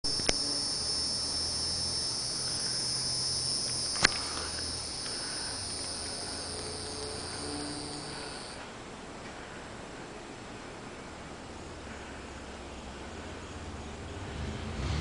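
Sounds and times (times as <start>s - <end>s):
cicada buzzing: 0.0s - 8.6s
low steady hum: 0.0s - 14.8s
sharp clicks: 0.1s - 1.0s, 2.2s - 8.6s.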